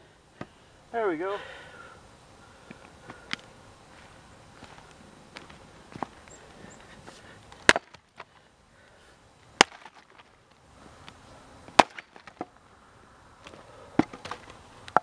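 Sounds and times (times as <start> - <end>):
axe chopping into log: 7.6 - 8.0, 9.6 - 10.2, 11.7 - 12.5, 14.0 - 14.4
wood chips knocking: 7.6 - 8.3, 9.6 - 10.4, 11.7 - 12.5, 14.0 - 15.0.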